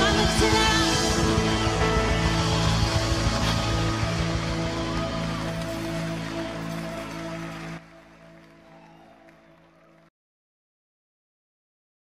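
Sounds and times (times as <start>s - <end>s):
background music: 0.0s - 10.1s.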